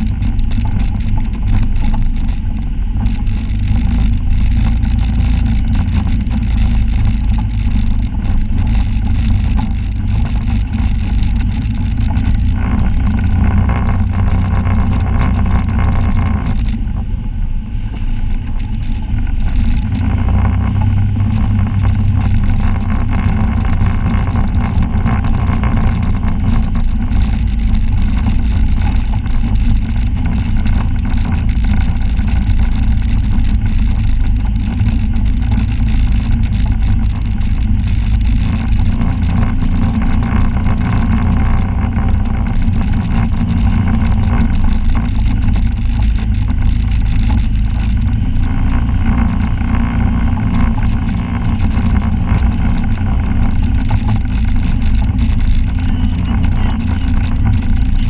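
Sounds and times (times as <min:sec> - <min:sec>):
vehicle knocks and rattles: 0:00.0 - 0:16.9, 0:18.3 - 0:58.0
utility vehicle engine running: 0:00.0 - 0:58.0.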